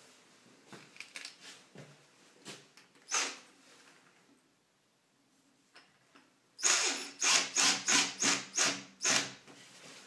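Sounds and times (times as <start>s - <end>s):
drill driving screw: 3.1s - 3.4s, 6.6s - 9.4s.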